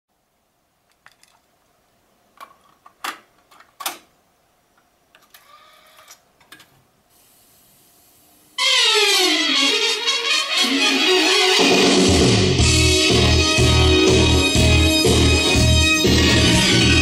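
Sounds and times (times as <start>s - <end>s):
tape hiss: 0.1s - 17.0s
loud music playing: 8.6s - 17.0s.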